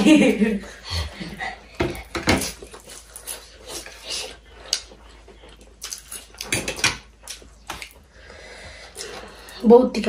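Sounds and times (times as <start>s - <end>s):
people chewing: 0.3s - 9.9s.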